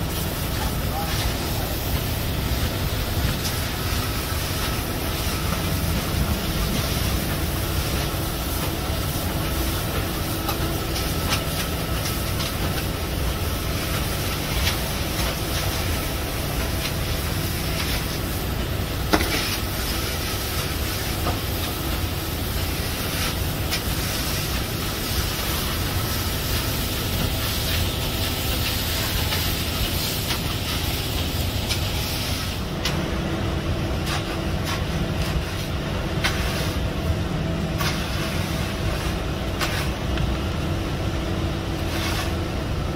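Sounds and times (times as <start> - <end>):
hiss: 0.0 - 32.7
machinery rumbling: 0.0 - 42.9.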